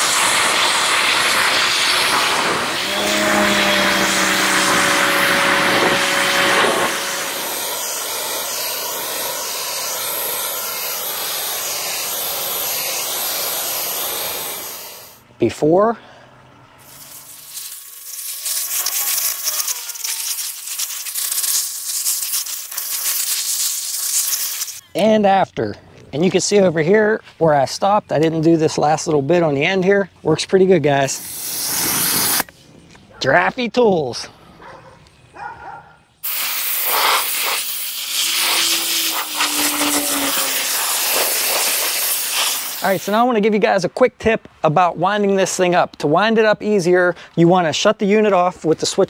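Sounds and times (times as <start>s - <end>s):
pressure washer jet hissing on concrete: 0.0s - 15.2s, 16.8s - 24.9s, 31.1s - 32.5s, 36.2s - 43.3s.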